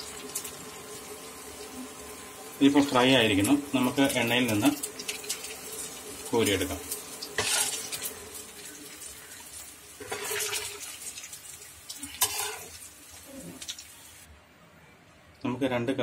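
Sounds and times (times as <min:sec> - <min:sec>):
slices crackling in hot oil: 0:00.0 - 0:14.3
scraping in frying pan: 0:07.4 - 0:08.1, 0:10.0 - 0:10.9, 0:12.0 - 0:12.8.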